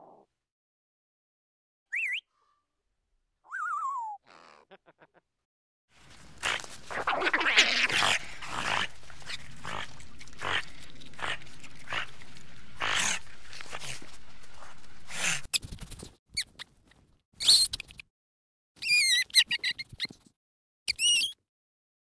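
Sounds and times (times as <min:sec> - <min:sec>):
high squeaky wavering calls: 0:18.8 - 0:19.8.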